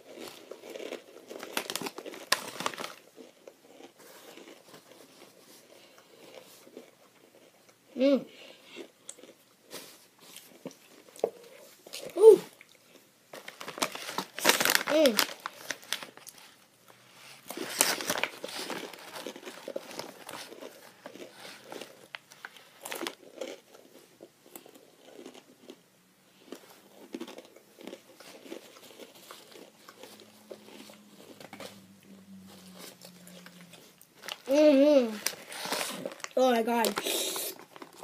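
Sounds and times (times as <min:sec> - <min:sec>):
crunching tortilla chip: 0:00.0 - 0:07.6, 0:13.3 - 0:16.5, 0:17.5 - 0:25.8, 0:26.4 - 0:38.0
plastic bag crinkling: 0:00.1 - 0:03.3, 0:13.3 - 0:16.6, 0:17.5 - 0:23.9, 0:27.0 - 0:38.0.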